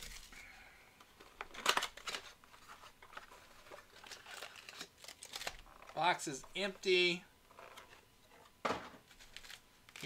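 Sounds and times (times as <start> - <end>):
cards and foil wrappers rustling: 0.0 - 0.4, 1.2 - 7.0, 9.0 - 10.0.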